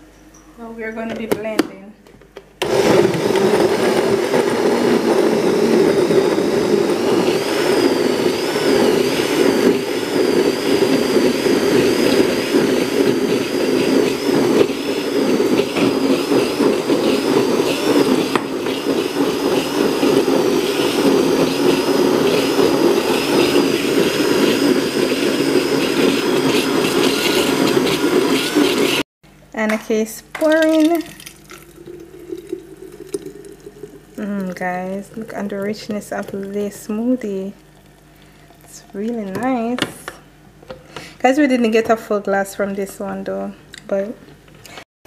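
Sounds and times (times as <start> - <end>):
blender running with high whine: 2.6 - 29.1, 30.5 - 40.2.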